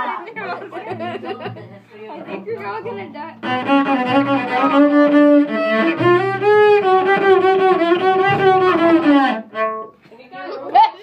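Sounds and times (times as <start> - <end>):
cello bowed long notes: 2.2 - 10.0.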